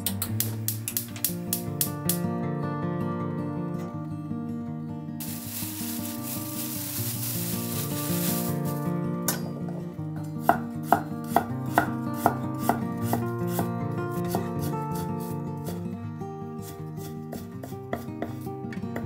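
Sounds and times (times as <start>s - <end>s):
plastic bag rustling: 5.2s - 9.0s.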